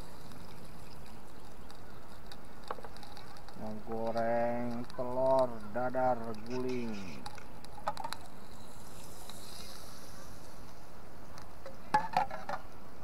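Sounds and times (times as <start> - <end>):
gas stove hissing: 8.3 - 11.6.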